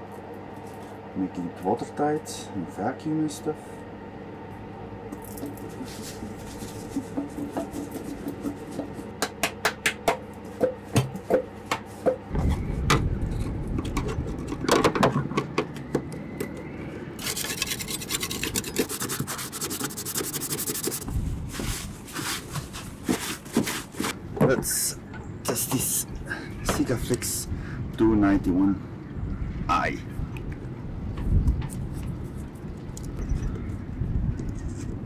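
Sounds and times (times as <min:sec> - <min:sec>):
cloth scrubbing plastic: 0:05.4 - 0:08.8, 0:17.2 - 0:24.2
low rumble: 0:12.3 - 0:15.8.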